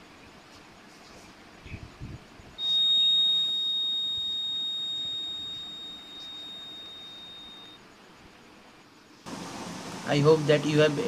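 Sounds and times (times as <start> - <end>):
high-pitched alarm buzzer: 2.6 - 7.8.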